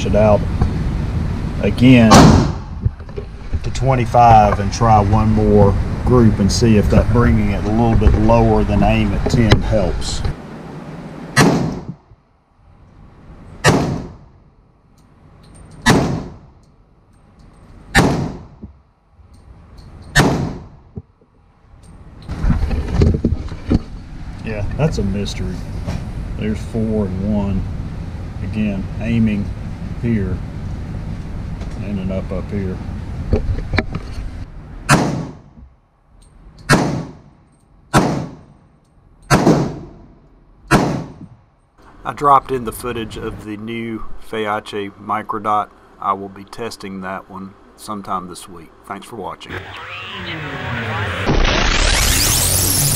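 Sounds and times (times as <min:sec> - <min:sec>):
echoing pistol gunshots: 0:02.1 - 0:02.7, 0:11.4 - 0:11.9, 0:13.6 - 0:14.3, 0:15.8 - 0:16.4, 0:17.9 - 0:18.5, 0:20.2 - 0:20.7, 0:34.9 - 0:35.4, 0:36.7 - 0:37.2, 0:37.9 - 0:38.5, 0:39.3 - 0:40.1, 0:40.7 - 0:41.2
gunshots echoing indoors: 0:02.1 - 0:02.7, 0:11.4 - 0:11.8, 0:13.6 - 0:14.3, 0:37.9 - 0:38.5, 0:39.3 - 0:40.1.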